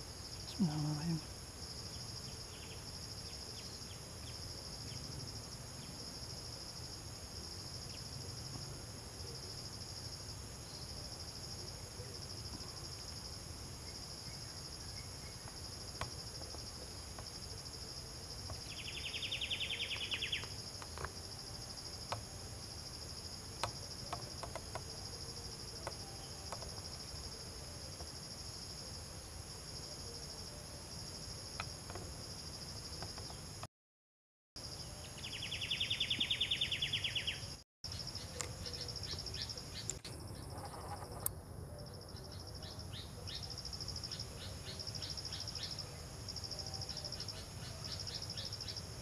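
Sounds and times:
insects droning: 0.0 - 33.7, 34.6 - 49.0.

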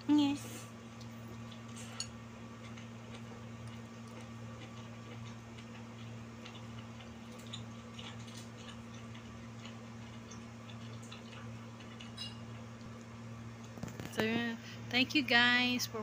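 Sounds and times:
steady low hum: 0.0 - 16.0
mouth smacks and chewing: 2.6 - 14.1.

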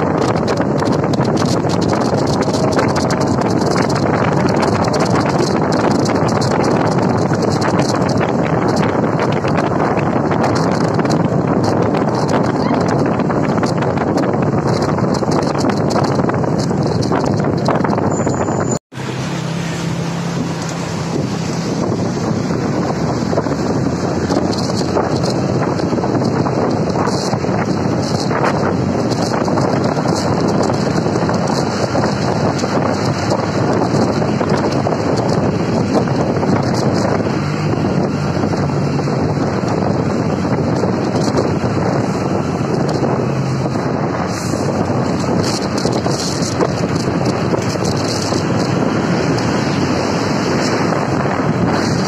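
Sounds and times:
low engine hum: 0.0 - 52.0
road noise: 0.0 - 52.0
wind rushing over microphone: 0.0 - 52.0.

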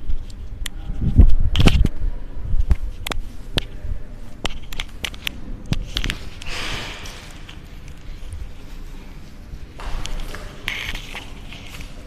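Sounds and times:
rustling scrape: 5.8 - 12.0.

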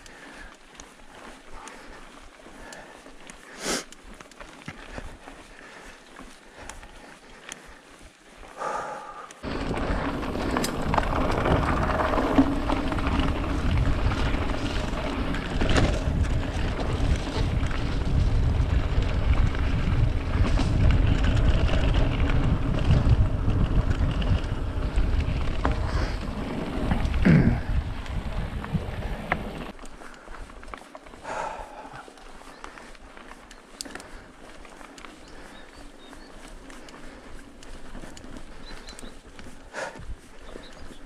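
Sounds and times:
bike rumbling and rattling: 0.0 - 41.0
wind rushing over microphone: 9.4 - 29.7.

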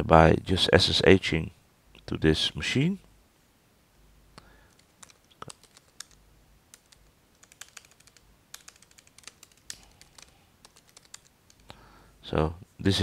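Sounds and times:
faint keyboard typing: 4.6 - 11.8.

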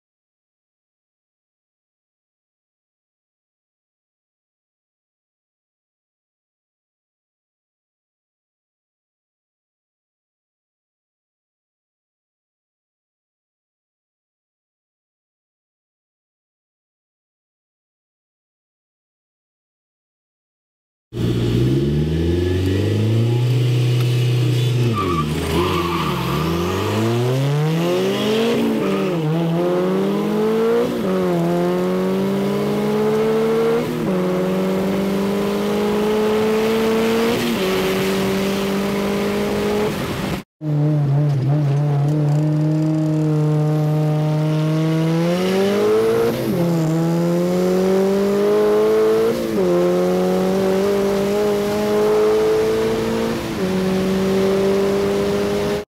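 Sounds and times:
turbocharged car engine at full throttle: 21.2 - 55.8.

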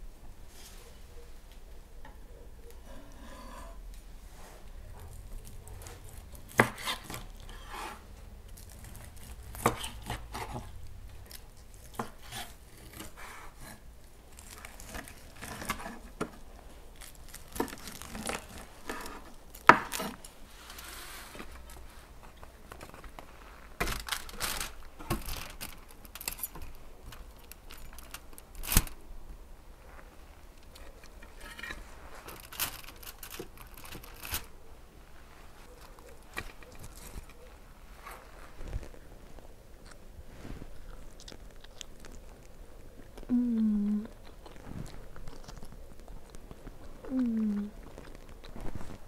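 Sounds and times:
spatula scraping foil tray: 5.1 - 10.7, 11.8 - 16.2, 17.1 - 22.1, 31.1 - 34.5.

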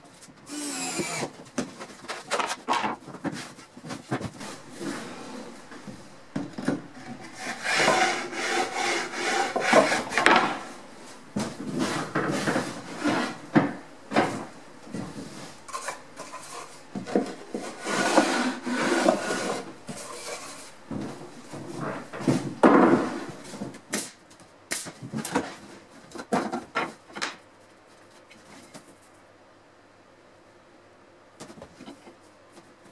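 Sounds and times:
boards knocking down: 1.6 - 10.7, 11.3 - 15.3, 16.9 - 24.0
plywood scraping across workbench: 2.4 - 23.8.

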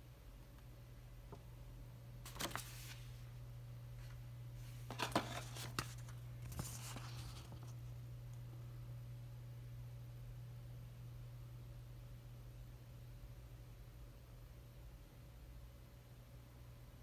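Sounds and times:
steady low hum: 0.0 - 17.0
paper leaflets rustling: 2.2 - 3.2, 4.6 - 7.9.

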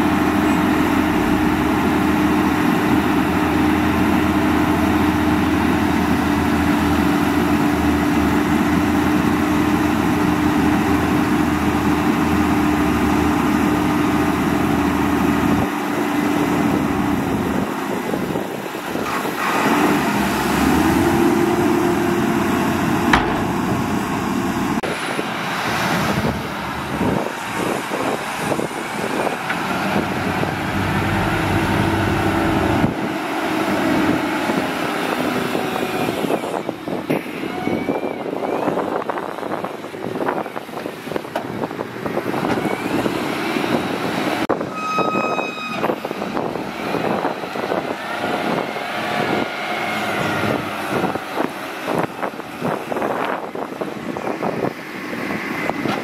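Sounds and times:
diesel engines running: 0.0 - 56.0
short high tone: 44.6 - 46.0.

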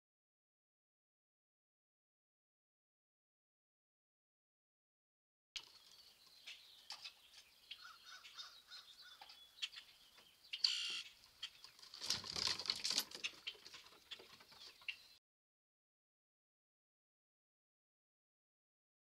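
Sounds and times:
small birds chirping: 5.6 - 15.2
rustling wing flutter: 11.7 - 14.8.

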